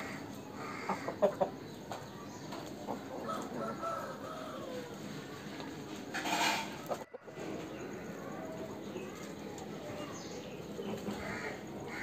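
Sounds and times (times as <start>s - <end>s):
rooster calling: 3.2s - 5.4s.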